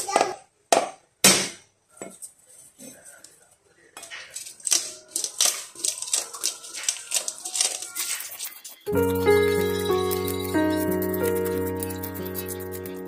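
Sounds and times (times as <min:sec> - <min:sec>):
fish scaler scraping scales: 0:05.7 - 0:13.0.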